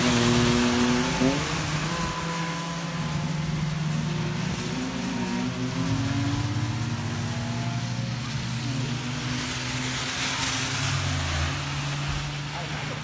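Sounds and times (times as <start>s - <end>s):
distant race car engines revving: 0.0s - 13.0s
hiss: 8.9s - 12.9s.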